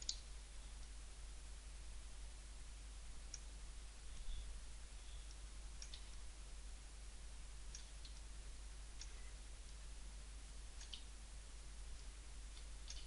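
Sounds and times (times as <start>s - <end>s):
steady low hum: 0.0s - 13.0s
computer mouse clicks: 5.3s - 6.2s, 7.7s - 8.2s, 10.8s - 11.1s, 12.6s - 13.0s.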